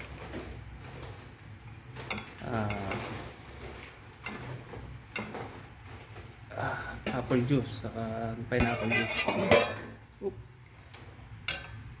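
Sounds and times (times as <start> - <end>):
metal spoon stirring sauce: 8.6 - 9.9.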